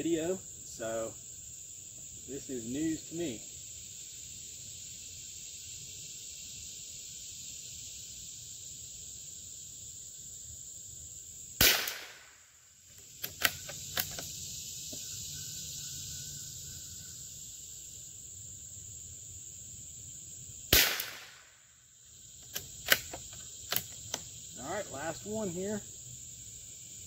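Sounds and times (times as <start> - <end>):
crickets droning: 0.0 - 27.0
rifle shot: 11.6 - 12.4, 20.7 - 21.6
rifle bolt clicks: 13.2 - 14.2.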